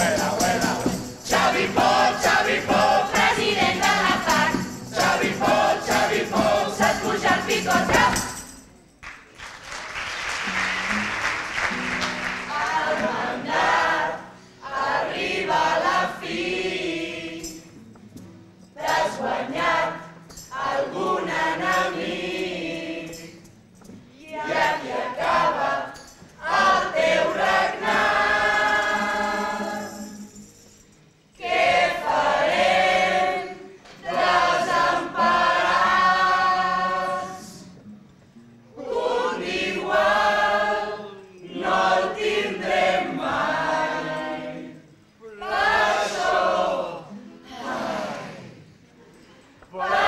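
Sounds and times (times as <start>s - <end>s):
choir singing in unison: 0.0s - 8.4s, 12.2s - 17.8s, 18.8s - 23.5s, 24.3s - 30.3s, 31.4s - 37.8s, 38.7s - 48.9s, 49.7s - 50.0s
strummed acoustic guitars: 0.0s - 8.8s, 10.4s - 40.9s.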